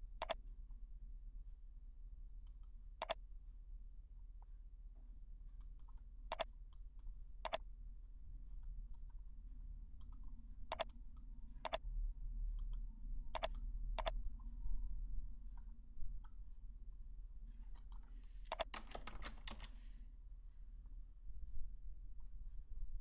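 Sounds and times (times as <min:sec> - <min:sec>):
faint low hum: 0:00.0 - 0:23.0
computer mouse clicks: 0:02.4 - 0:03.2, 0:05.6 - 0:07.6, 0:10.0 - 0:11.8, 0:12.6 - 0:14.2, 0:17.8 - 0:19.9
keyboard keystrokes: 0:10.0 - 0:10.9, 0:13.4 - 0:14.1, 0:17.8 - 0:19.8.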